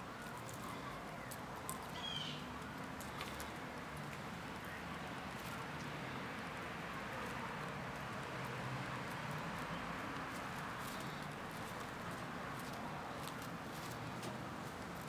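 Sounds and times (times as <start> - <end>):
outdoor background hiss: 0.0 - 15.0
high falling bird chirp: 1.9 - 2.5.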